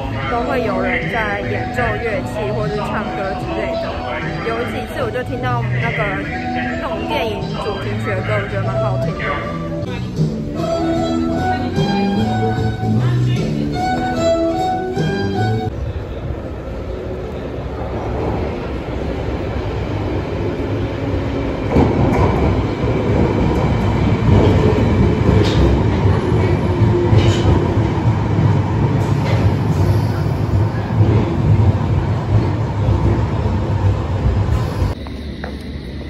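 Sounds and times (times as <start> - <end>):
train rumbling on rails: 0.0 - 36.0.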